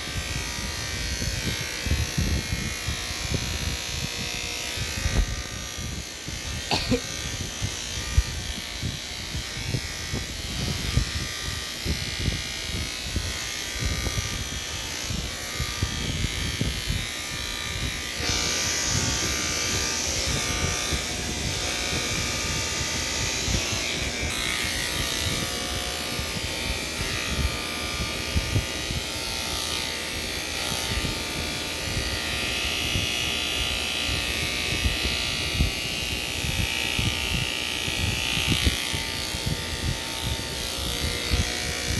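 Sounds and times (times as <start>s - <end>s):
electric hair clippers buzzing: 0.0s - 41.9s.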